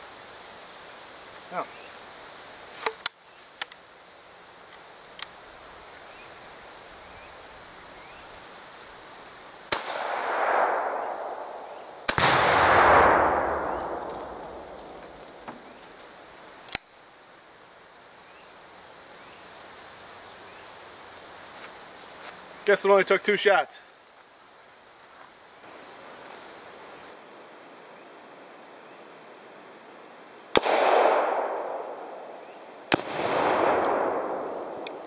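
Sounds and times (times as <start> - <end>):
light clicks: 4.7 - 5.4
rifle shots with echo: 9.7 - 15.2, 30.6 - 32.3, 32.9 - 35.0
deep explosion blast: 12.1 - 15.0.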